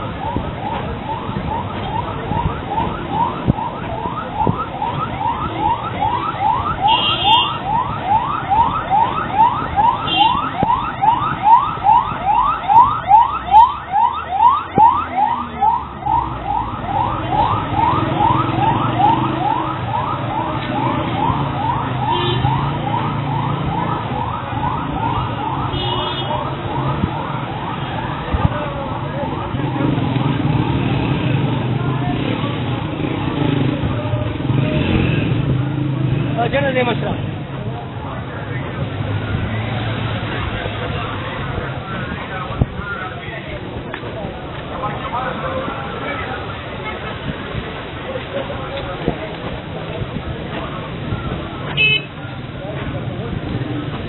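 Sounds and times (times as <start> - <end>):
ambulance siren: 0.0 - 31.2, 37.8 - 43.2
low traffic rumble: 0.0 - 54.0.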